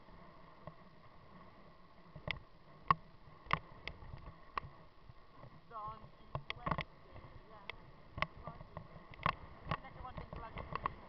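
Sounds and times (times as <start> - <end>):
tyres rumbling on gravel: 5.4 - 11.0.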